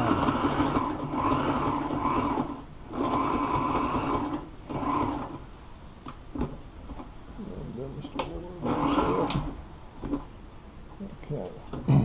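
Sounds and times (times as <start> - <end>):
sewing machine stitching: 0.0 - 5.4, 8.6 - 10.2.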